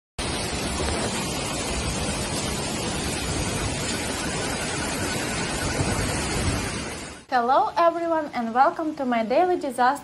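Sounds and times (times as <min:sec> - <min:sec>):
hail and rain hitting paving: 0:00.2 - 0:07.2.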